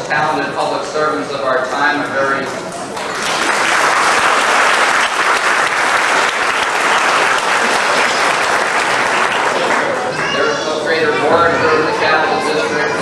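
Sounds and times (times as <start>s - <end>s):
audience applauding: 2.6s - 10.8s.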